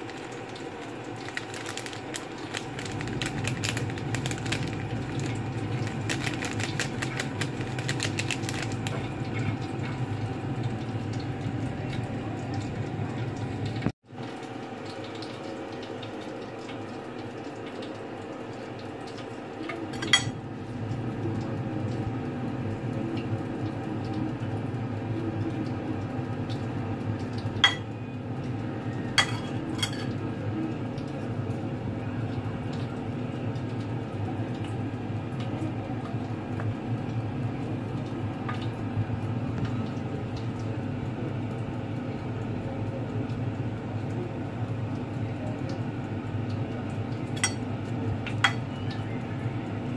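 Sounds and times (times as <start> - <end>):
metal spoon clinking on ceramic bowl: 19.9 - 20.4, 27.6 - 27.9, 29.2 - 30.1, 48.4 - 48.6.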